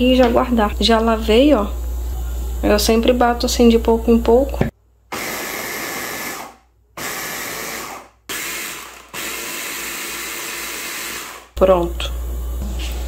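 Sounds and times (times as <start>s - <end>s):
electric hand blender chopping: 5.1s - 11.6s.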